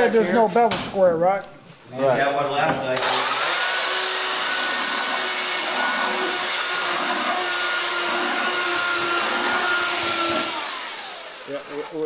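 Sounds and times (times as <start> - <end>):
power tool motor whining: 3.0 - 12.0.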